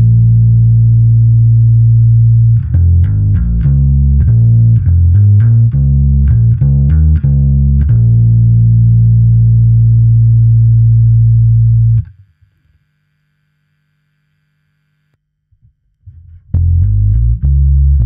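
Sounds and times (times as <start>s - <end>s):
electric bass notes: 0.0s - 12.1s, 16.0s - 18.0s
faint hum: 8.4s - 15.8s.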